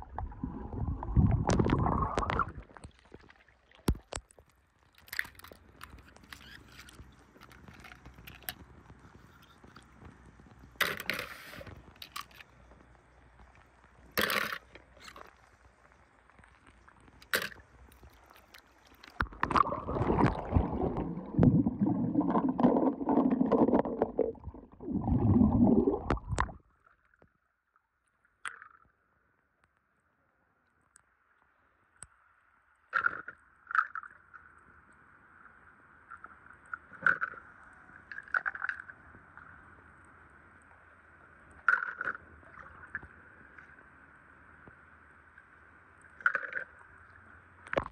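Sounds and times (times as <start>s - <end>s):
muffled underwater churning: 0.0s - 4.2s, 14.8s - 26.7s.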